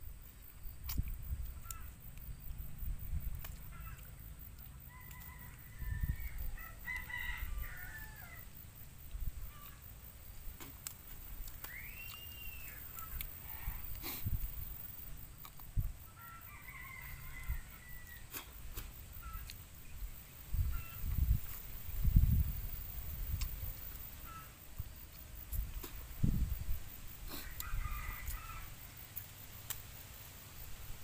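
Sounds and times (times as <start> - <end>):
rooster crowing: 4.9 - 8.6, 16.1 - 18.3, 27.4 - 28.8.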